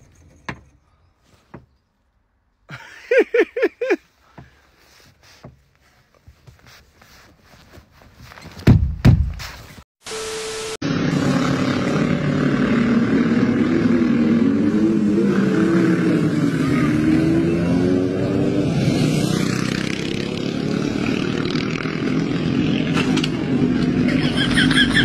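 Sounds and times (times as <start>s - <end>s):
motorcycle engines revving: 10.8s - 25.0s.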